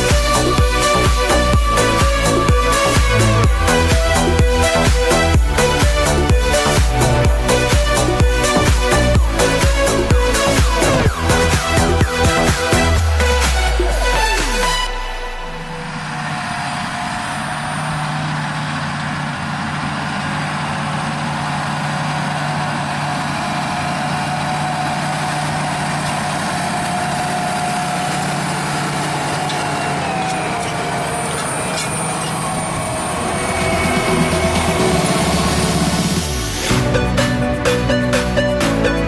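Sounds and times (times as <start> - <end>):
steady whine: 0.0 - 38.0
tractor diesel engine: 0.0 - 39.0.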